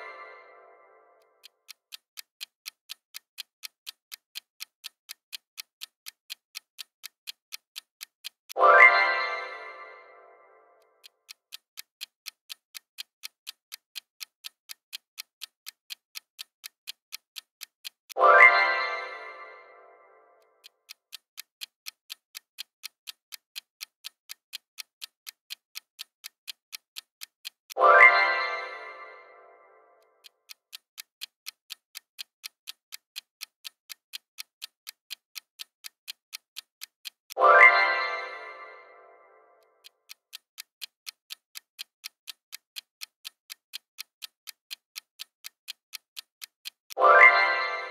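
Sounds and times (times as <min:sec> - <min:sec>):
clock ticks: 0:00.0 - 0:47.9.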